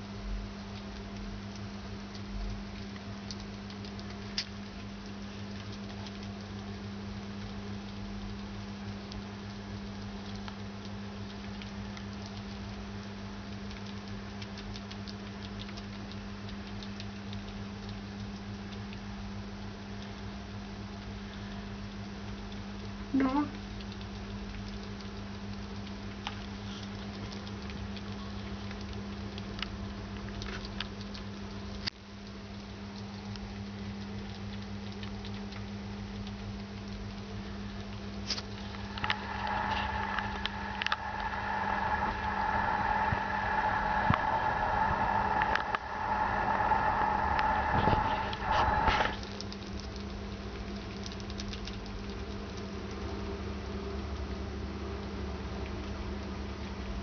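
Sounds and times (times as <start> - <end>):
low electrical hum: 0.0 - 57.0
rats chewing and lapping: 0.0 - 57.0
loud humming with knocks: 38.6 - 49.2.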